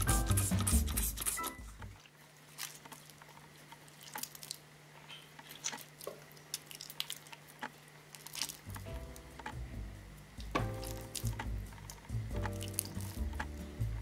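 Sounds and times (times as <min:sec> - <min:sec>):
wet clay squelching: 0:02.0 - 0:04.6, 0:05.4 - 0:08.9
steady low hum: 0:07.5 - 0:14.0.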